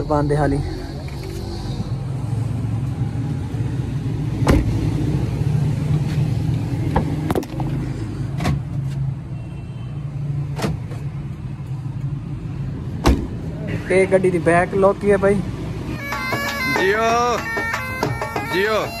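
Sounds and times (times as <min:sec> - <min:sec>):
car door and trim knocks: 0:13.0 - 0:13.4.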